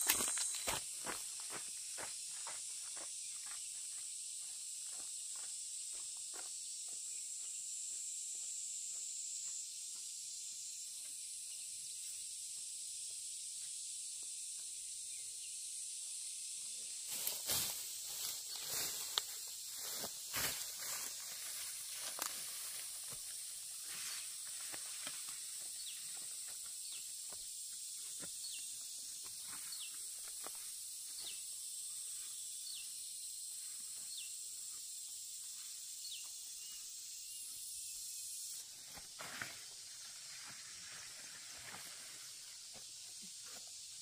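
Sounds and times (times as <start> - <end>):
rustling of ferns and leaves: 0.0 - 1.6, 17.0 - 26.7, 38.7 - 44.0
insect chorus hissing: 0.0 - 44.0.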